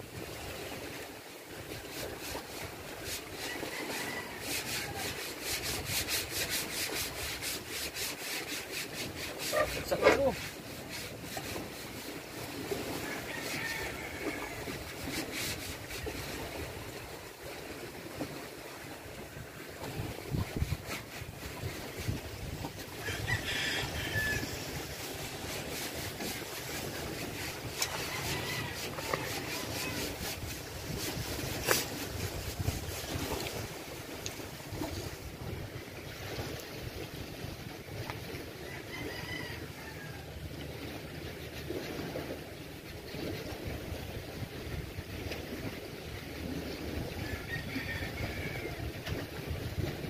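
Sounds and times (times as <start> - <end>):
wind rumbling on microphone: 0.0 - 50.0
paintbrush scrubbing on wood: 1.7 - 16.7, 20.1 - 35.2.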